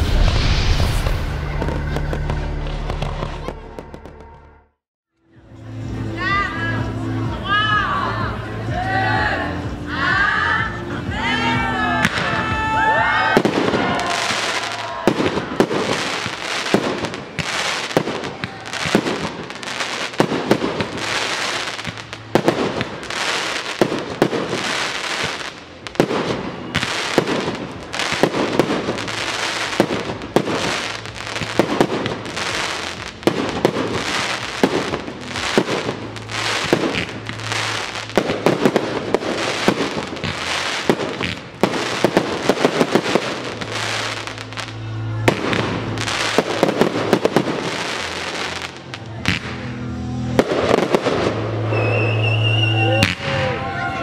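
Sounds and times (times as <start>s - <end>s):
firework bangs: 0.0s - 4.5s, 13.2s - 53.5s
firework crackling: 0.0s - 4.5s, 12.0s - 53.5s.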